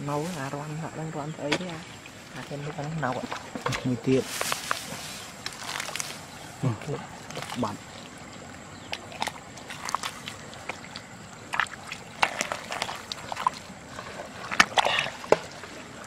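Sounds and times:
small splashes: 1.4 - 16.0
hand squelching in wet mud: 2.6 - 6.6, 7.2 - 16.0.

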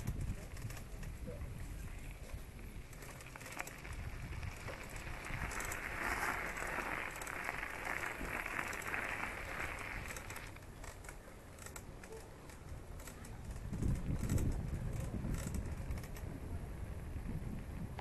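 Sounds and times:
wind rumble on microphone: 0.0 - 10.6, 12.9 - 18.0
bicycle tyres crunching on gravel: 0.1 - 11.8.

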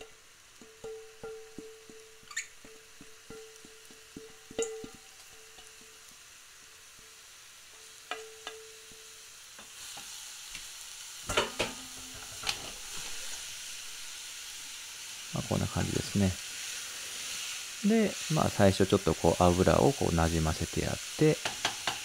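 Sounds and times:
spatula clattering in pan: 0.0 - 6.0, 8.1 - 10.1, 11.3 - 12.8, 21.4 - 22.0
onions sizzling in oil: 0.0 - 22.0.

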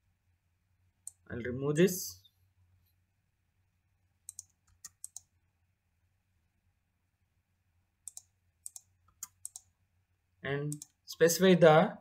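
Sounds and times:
keyboard and mouse clicks: 1.0 - 1.2, 4.2 - 5.3, 8.0 - 9.7, 10.7 - 11.0.

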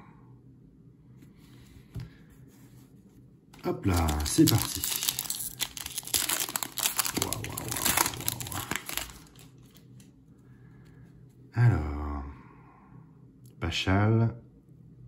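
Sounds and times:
cards being handled: 3.0 - 10.1
foil wrapper tearing and crinkling: 3.6 - 10.1.

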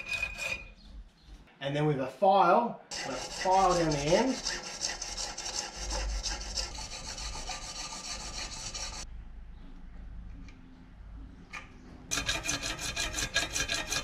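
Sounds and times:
file rasping on brass rod: 0.0 - 0.7, 2.9 - 9.0, 12.1 - 14.0
hacksaw sawing brass rod: 0.0 - 0.7, 2.9 - 9.0, 12.1 - 14.0.

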